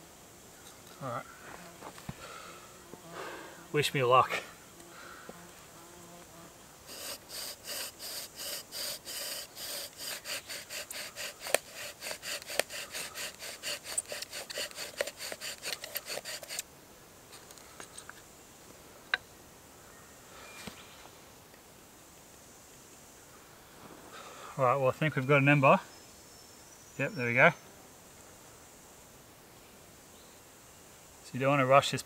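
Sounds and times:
bow drill rasping grind: 6.9 - 16.6.

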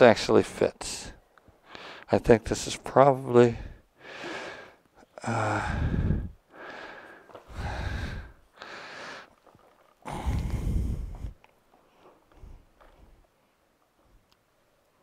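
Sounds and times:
man breathing heavily through nose: 1.6 - 2.1, 3.5 - 9.3, 10.1 - 11.4.

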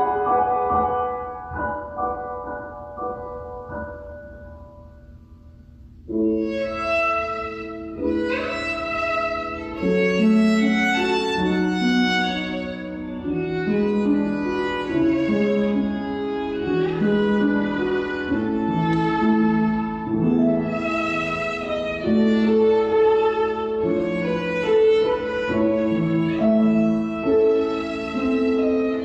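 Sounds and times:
violin playing slow melody: 6.1 - 29.0.

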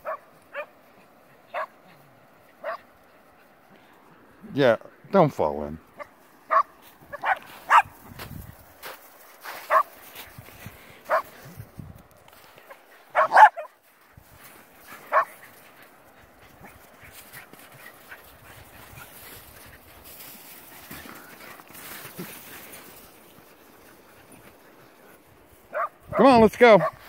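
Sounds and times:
dogs barking: 0.0 - 0.7, 1.5 - 1.8, 2.6 - 2.8, 6.0 - 8.0, 9.7 - 9.9, 11.1 - 11.3, 13.1 - 13.7, 15.0 - 15.4, 25.7 - 27.0.

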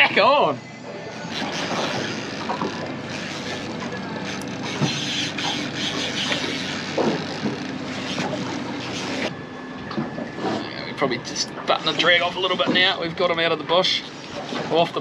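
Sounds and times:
steady mechanical hum: 0.0 - 15.0
water: 0.0 - 15.0
wind: 0.0 - 15.0
fishing reel cranking: 1.2 - 9.3.

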